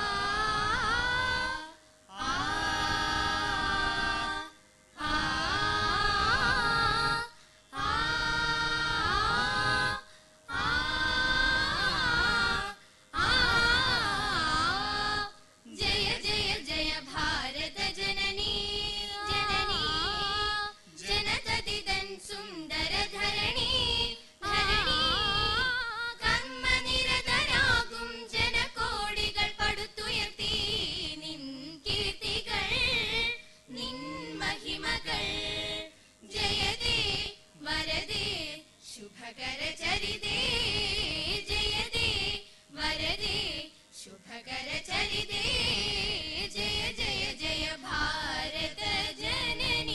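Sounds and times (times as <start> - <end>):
group of students singing: 0.0 - 18.6, 33.7 - 37.0, 46.6 - 49.9.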